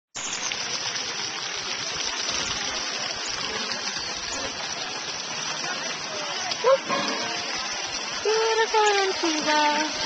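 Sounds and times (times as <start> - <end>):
fountain water splashing into pool: 0.2 - 10.0.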